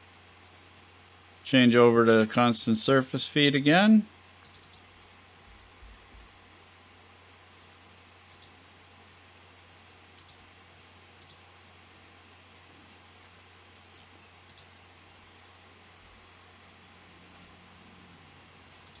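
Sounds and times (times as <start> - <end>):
low steady hum: 0.0 - 19.0
computer mouse clicks: 4.4 - 6.3, 8.3 - 8.6, 10.0 - 10.4, 11.2 - 11.4, 13.5 - 14.7, 18.8 - 19.0.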